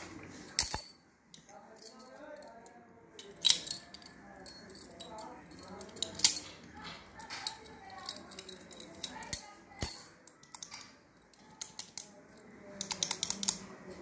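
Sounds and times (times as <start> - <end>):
padlock and key clicking: 12.8 - 13.6.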